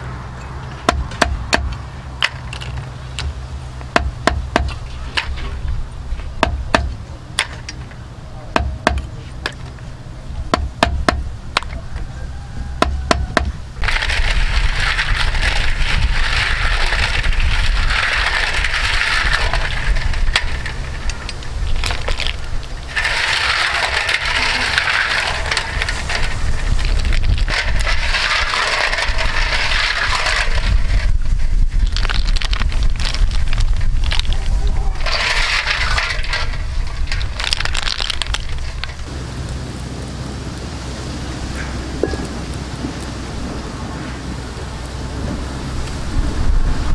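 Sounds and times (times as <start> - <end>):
snail shells clattering in metal bowl: 11.6 - 39.1
steady hiss: 38.6 - 46.9.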